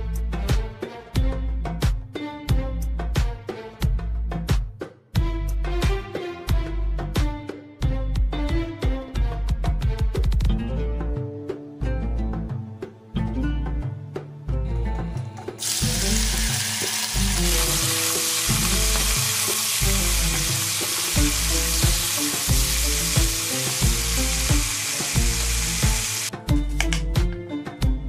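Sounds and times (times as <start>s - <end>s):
meat sizzling in fat: 15.6s - 26.4s.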